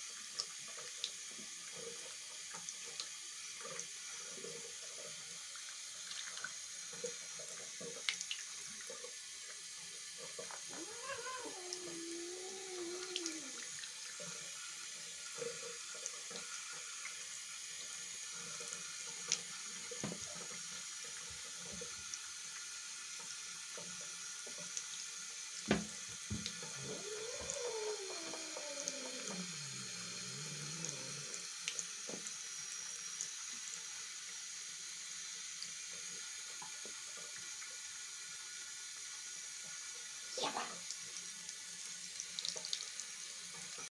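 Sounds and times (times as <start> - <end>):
faucet running into sink: 0.0 - 43.9
kitten mewing: 10.7 - 13.6, 26.8 - 29.8, 40.4 - 40.8.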